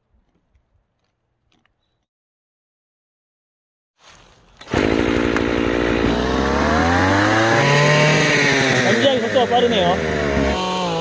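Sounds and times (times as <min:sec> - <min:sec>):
brush cutter engine revving: 0:04.6 - 0:11.0.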